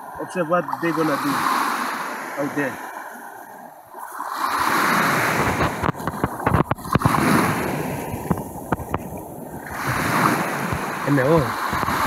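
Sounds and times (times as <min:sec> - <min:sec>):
small waves washing onto beach: 0:00.0 - 0:12.0
wind gusting on microphone: 0:04.2 - 0:12.0.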